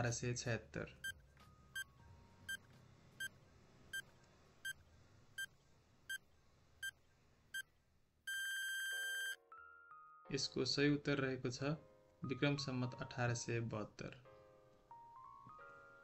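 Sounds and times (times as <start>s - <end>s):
long steady buzzer tone: 8.3s - 9.4s
short electronic beeps: 8.3s - 9.4s.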